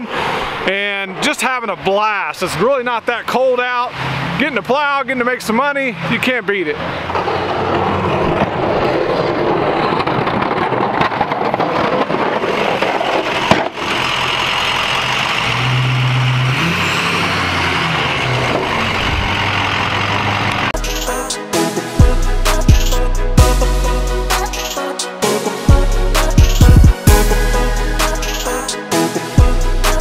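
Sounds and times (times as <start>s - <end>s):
truck engine: 5.9s - 30.0s
plow pushing snow: 6.9s - 21.2s.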